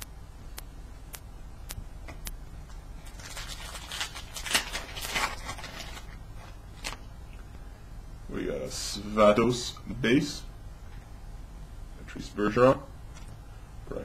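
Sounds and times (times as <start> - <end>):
foil wrapper tearing: 3.0 - 7.0.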